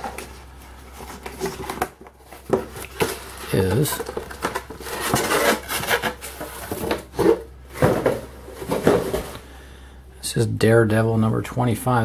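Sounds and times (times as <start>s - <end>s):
cardboard rubbing and scraping: 3.4s - 9.4s.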